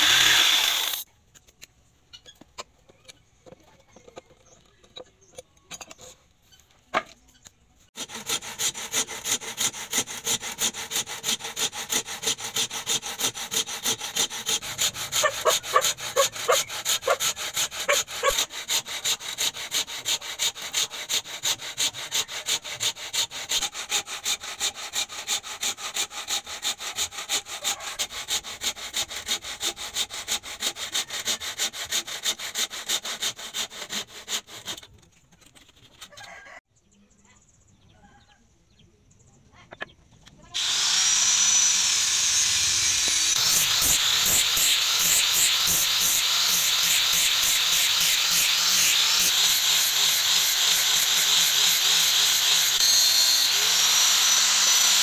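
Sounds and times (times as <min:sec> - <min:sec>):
hand tool rasping: 0:00.0 - 0:01.0, 0:08.0 - 0:36.3, 0:40.6 - 0:55.0.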